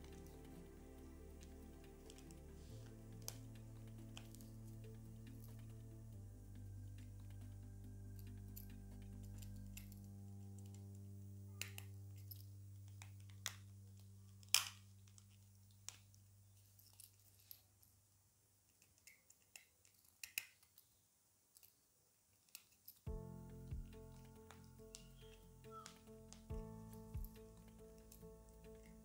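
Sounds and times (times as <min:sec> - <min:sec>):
background music: 0:00.0 - 0:14.8, 0:23.1 - 0:29.0.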